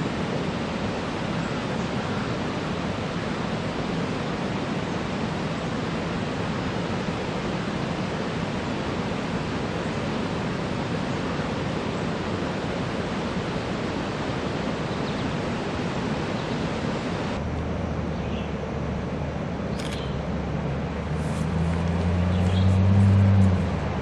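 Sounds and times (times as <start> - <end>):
rushing outdoor noise: 0.0 - 24.0
passing vehicle engine rumble: 17.4 - 24.0
short bird chirps: 19.8 - 20.2.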